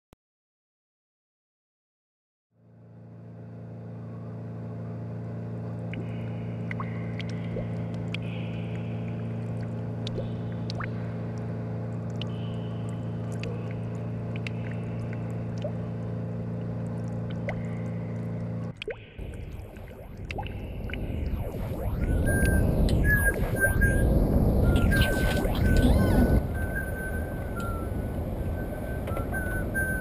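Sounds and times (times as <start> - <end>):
boat motor idling: 23.9 - 30.0.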